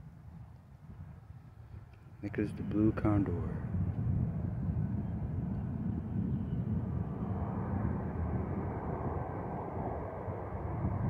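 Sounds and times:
distant jet engines rumbling: 0:00.0 - 0:11.0.

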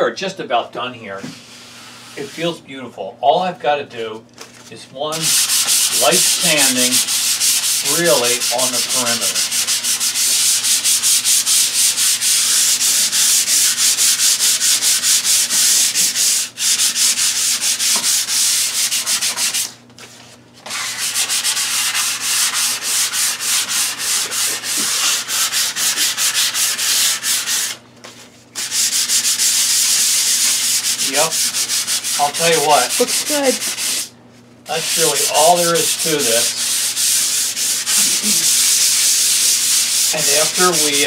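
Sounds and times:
hand sanding scratchy strokes: 0:05.1 - 0:19.8, 0:20.7 - 0:27.8, 0:28.6 - 0:34.1, 0:34.7 - 0:41.0.

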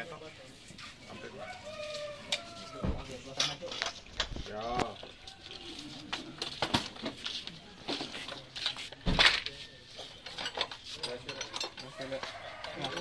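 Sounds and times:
light metallic clinks and knocks: 0:06.4 - 0:13.0.

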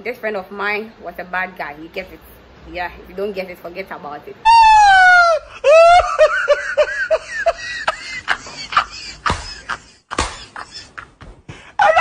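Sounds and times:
man laughing hard: 0:05.2 - 0:12.0
breathy gasps: 0:11.5 - 0:11.8.

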